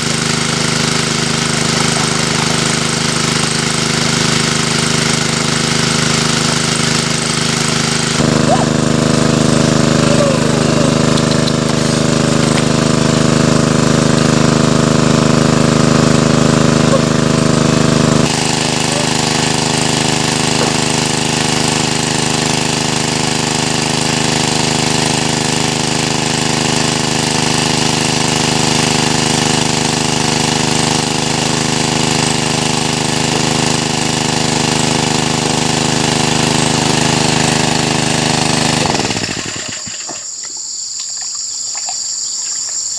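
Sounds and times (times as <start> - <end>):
water pump engine running: 0.0 - 42.9.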